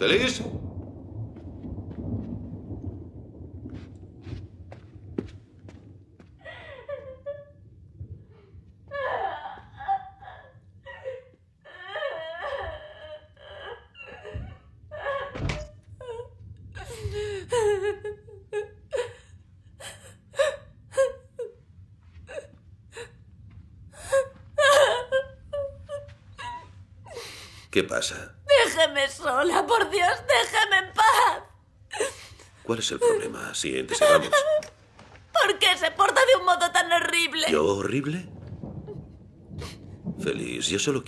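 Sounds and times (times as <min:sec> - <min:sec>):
woman sobbing and whimpering: 0:06.4 - 0:07.7, 0:08.8 - 0:21.6, 0:22.2 - 0:23.2, 0:24.0 - 0:27.6, 0:28.5 - 0:34.8.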